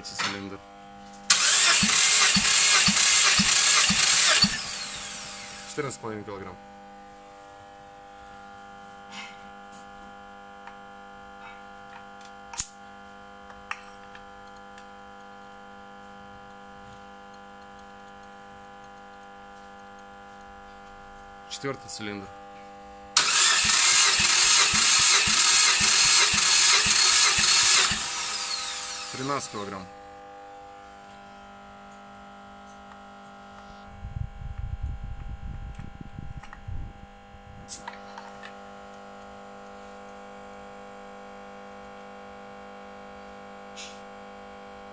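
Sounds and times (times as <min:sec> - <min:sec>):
electrical hum: 0:14.2 - 0:40.6.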